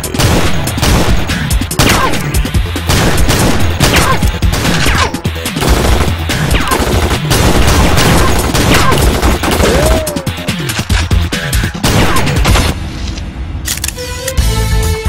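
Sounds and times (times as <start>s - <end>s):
rapid gunfire: 0.0s - 12.8s
background music with low beat: 9.5s - 12.8s.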